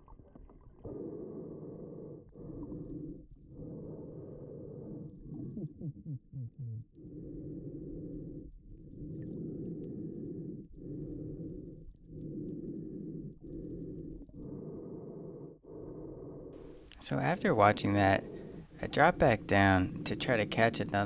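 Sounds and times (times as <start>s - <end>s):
snorkeler breathing underwater: 7.0s - 21.0s.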